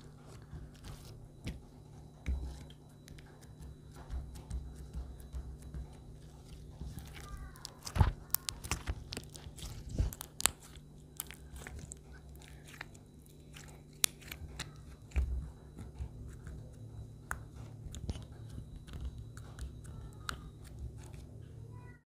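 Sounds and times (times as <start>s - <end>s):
slime squeezed by hand sticky clicks: 7.0s - 12.0s.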